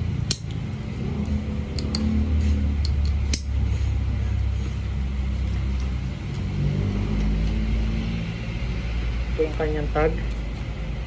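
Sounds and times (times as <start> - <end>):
helmet buckle clicking: 1.7 - 2.1.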